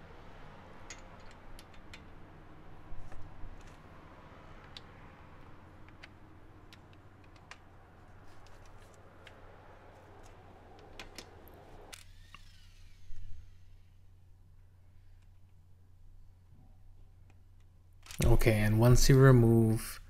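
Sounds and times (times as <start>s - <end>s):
metallic clicks of lug nuts: 0.8s - 2.1s.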